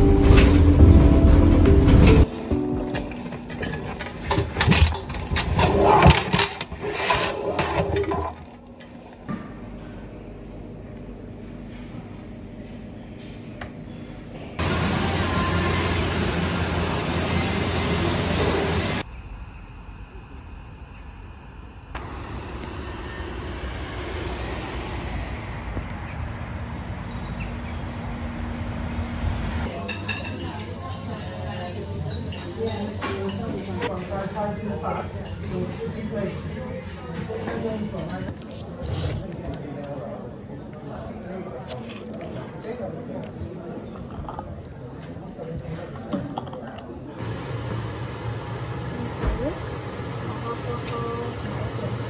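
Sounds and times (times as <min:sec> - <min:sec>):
road traffic rumble: 0:14.6 - 0:29.9, 0:41.5 - 0:52.0.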